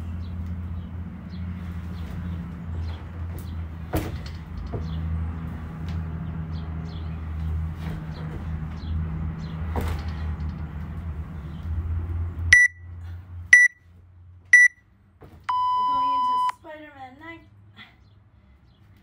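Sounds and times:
short high timer beeps: 0:12.6 - 0:12.8, 0:13.6 - 0:13.8, 0:14.6 - 0:14.8, 0:15.5 - 0:16.5.

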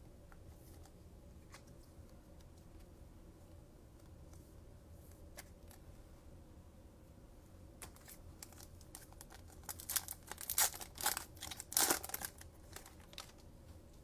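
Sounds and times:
card pack wrapper tearing: 0:07.9 - 0:13.4.

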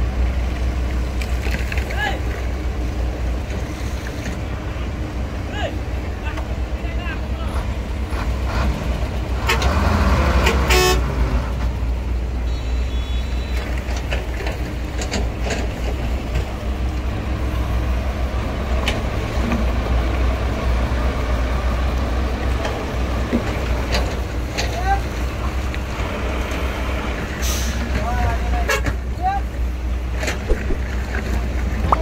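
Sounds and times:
heavy machinery diesel engines rumbling: 0:00.0 - 0:32.0
short horn toot: 0:12.5 - 0:13.6
knocks: 0:30.5 - 0:30.9.

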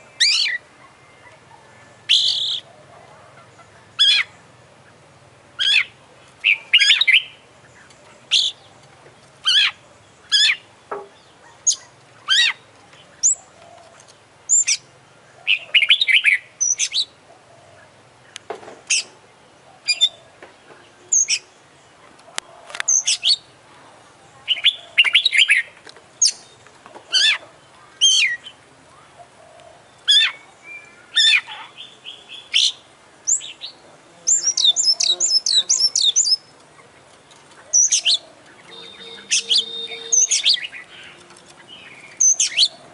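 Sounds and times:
bird singing loudly: 0:02.0 - 0:02.7, 0:05.6 - 0:07.4, 0:30.0 - 0:36.5, 0:37.7 - 0:41.2, 0:41.8 - 0:42.8.

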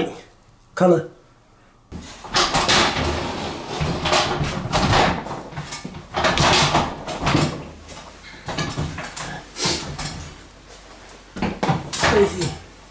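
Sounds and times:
rustling and knocking: 0:01.9 - 0:09.2.

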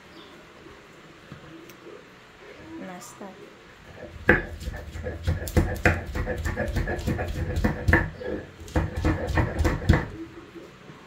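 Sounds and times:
hands peeling garlic: 0:04.3 - 0:10.1.

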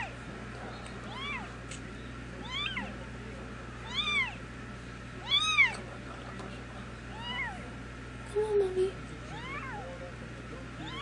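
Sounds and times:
cat meowing: 0:01.1 - 0:01.5, 0:02.4 - 0:02.9, 0:03.8 - 0:04.4, 0:05.2 - 0:05.8, 0:09.3 - 0:09.9.

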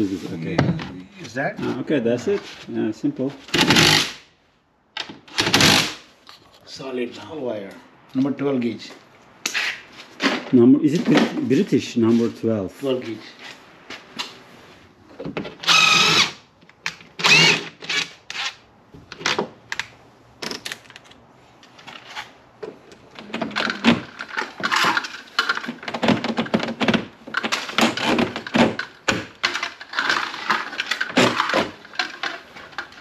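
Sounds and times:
cordless drill whining: 0:15.6 - 0:16.4, 0:17.2 - 0:18.1
metal conduit rattling and clicking: 0:23.3 - 0:33.0.

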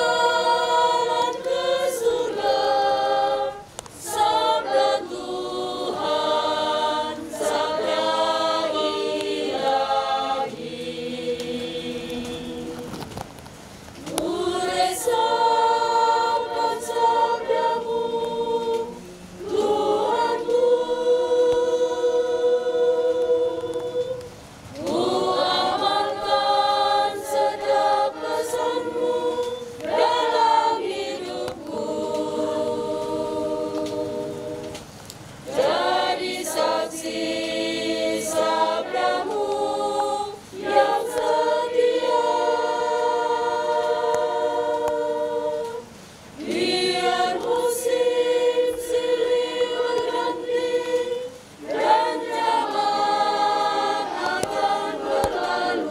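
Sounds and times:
women's choir singing a hymn: 0:00.0 - 0:55.9.

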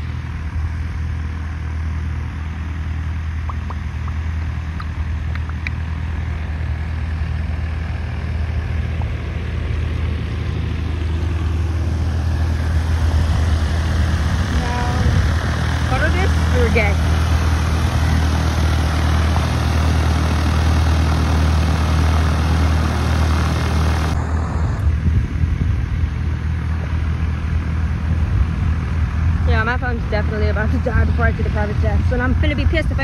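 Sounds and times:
propeller plane engine drone: 0:00.0 - 0:33.0.

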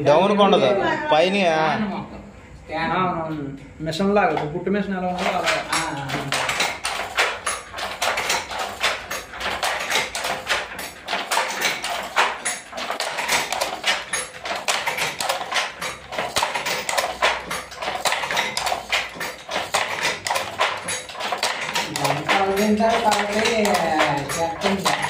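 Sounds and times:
wooden handloom clacking: 0:05.0 - 0:25.0.

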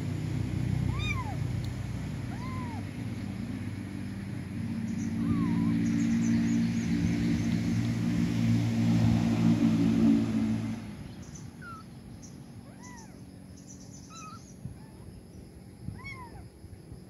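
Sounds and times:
vehicle engine hum: 0:00.0 - 0:17.0
faint chirps: 0:11.2 - 0:16.5.

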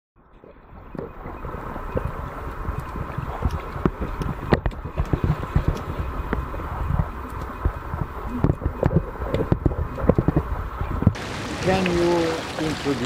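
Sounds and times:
muffled underwater water rushing: 0:00.2 - 0:13.0
underwater clicks and knocks: 0:00.3 - 0:11.2.

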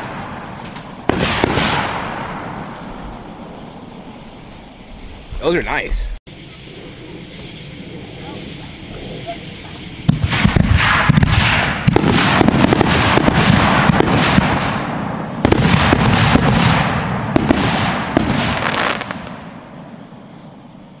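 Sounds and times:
fireworks crackling and popping: 0:00.0 - 0:03.6, 0:09.3 - 0:19.7.

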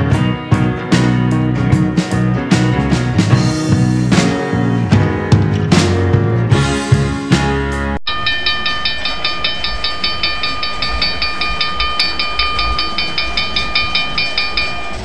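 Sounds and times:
background music: 0:00.0 - 0:15.0
railroad warning bell ringing: 0:08.0 - 0:15.0
diesel locomotive rumbling past: 0:08.1 - 0:15.0.

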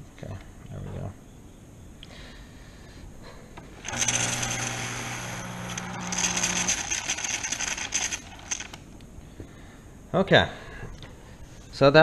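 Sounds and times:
coffee machine pump humming: 0:03.8 - 0:07.4.

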